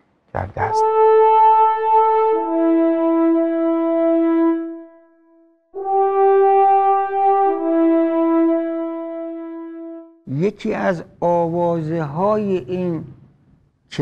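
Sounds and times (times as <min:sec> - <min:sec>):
brass horn long notes: 0:00.5 - 0:10.3.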